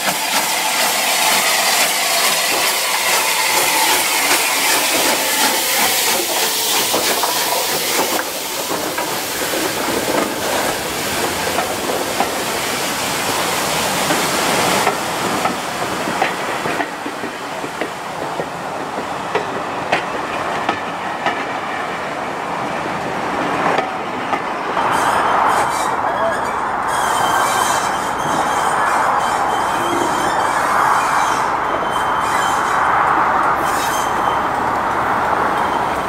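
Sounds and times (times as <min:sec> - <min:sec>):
wheels clicking over rail joints: 0:00.0 - 0:12.6, 0:14.0 - 0:21.6
train hissing on rails: 0:00.0 - 0:36.0.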